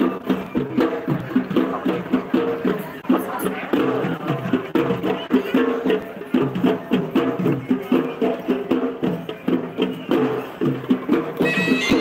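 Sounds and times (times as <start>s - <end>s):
sharp percussion strokes: 4.9s - 12.0s
procession music: 11.4s - 12.0s.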